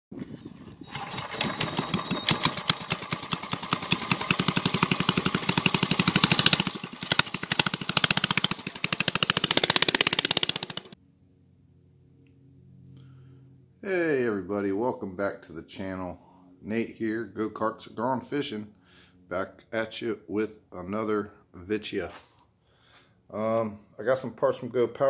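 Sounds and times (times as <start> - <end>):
mini bike engine revving: 0.8 - 11.0.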